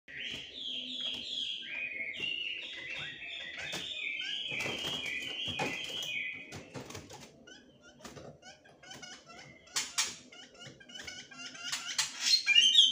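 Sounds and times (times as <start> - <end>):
bird singing whistled notes: 0.1 - 6.6, 12.2 - 12.9
bird hopping and flapping: 0.2 - 11.3.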